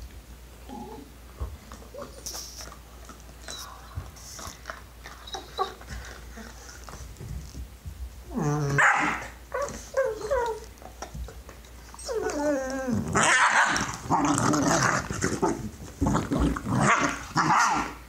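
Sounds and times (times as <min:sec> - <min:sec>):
dog whining: 0:00.6 - 0:02.5, 0:03.4 - 0:06.8, 0:08.3 - 0:11.1, 0:11.8 - 0:14.3
dogs scuffling: 0:01.3 - 0:17.4
dogs gnawing on bone: 0:01.4 - 0:07.6, 0:09.5 - 0:17.5.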